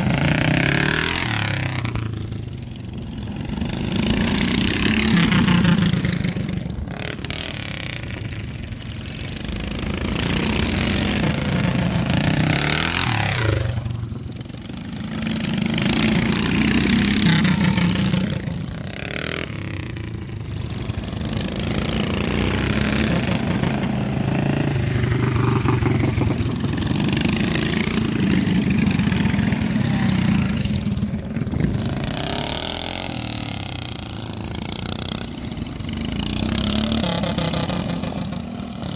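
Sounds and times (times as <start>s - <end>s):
minibike engines revving: 0.0s - 38.9s.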